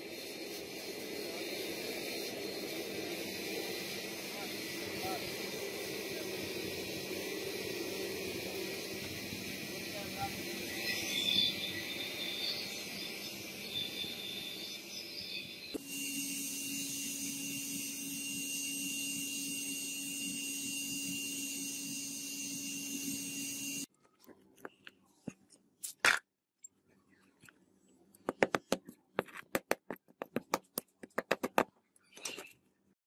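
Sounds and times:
steady hiss: 0.0 - 14.2.

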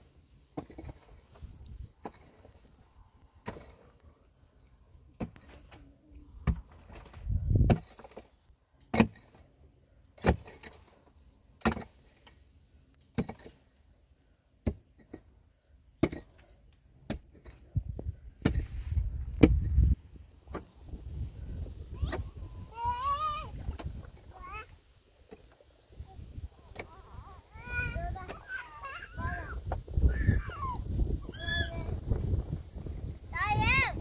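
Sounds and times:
knocks and thuds: 6.4 - 8.2.

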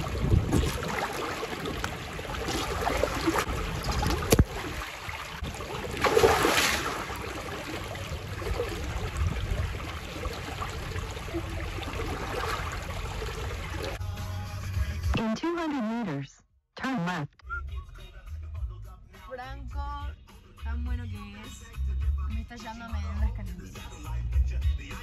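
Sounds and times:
low rumble: 0.0 - 4.7, 7.8 - 13.8
water churning and lapping: 0.0 - 14.0
water splashes: 0.0 - 14.0.

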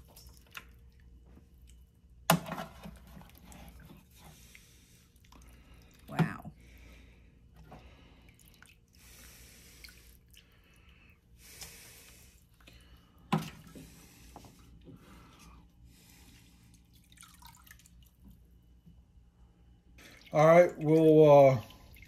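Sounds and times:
broth dripping and splashing: 0.0 - 6.4, 7.9 - 11.2, 15.2 - 18.4, 20.0 - 22.0.

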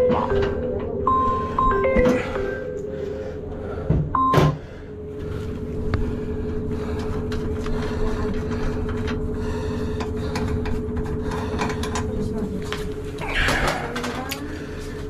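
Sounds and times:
held tone: 0.0 - 3.5
mechanical hum with low rumble: 0.0 - 15.0.

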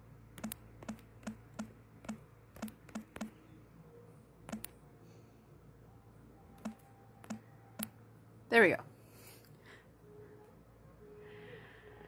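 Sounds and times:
faint steady hum: 0.0 - 12.0
typing taps: 0.4 - 3.4, 4.5 - 4.7, 6.6 - 7.9.

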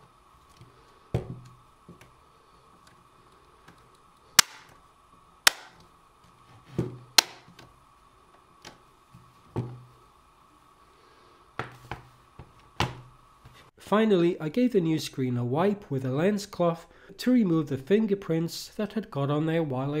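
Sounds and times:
plastic clips snapping into place: 4.4 - 4.8, 5.5 - 5.8.

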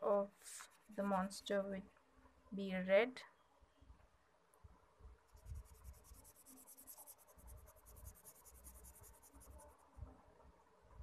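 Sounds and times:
pen scribbling on paper: 5.4 - 9.8.

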